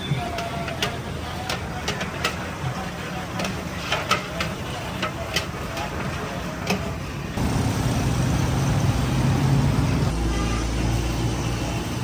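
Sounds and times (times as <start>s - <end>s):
vehicle engine running: 7.4s - 12.0s.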